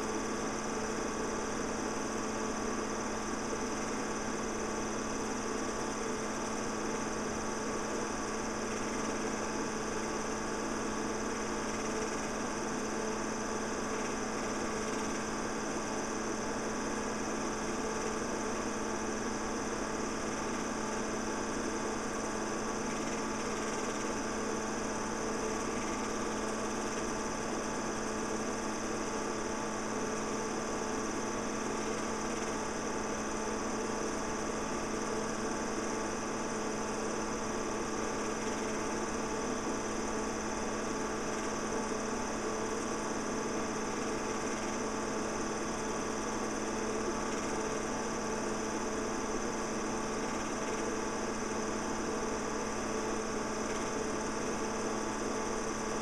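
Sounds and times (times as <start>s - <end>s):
film projector humming: 0.0s - 56.0s.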